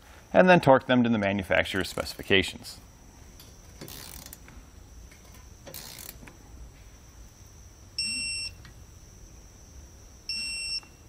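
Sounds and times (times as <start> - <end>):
high-pitched electronic beep: 8.0 - 8.6, 10.3 - 10.9.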